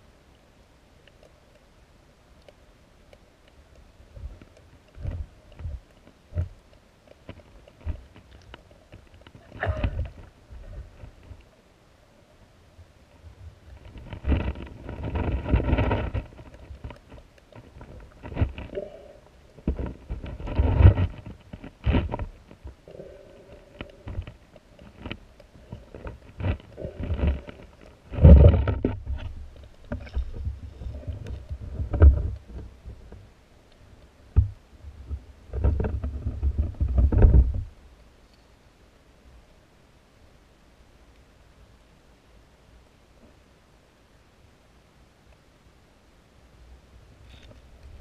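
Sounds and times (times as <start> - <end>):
low underwater rumbles: 7.4 - 11.6, 13.1 - 38.0
underwater gushes of water: 12.3 - 37.7.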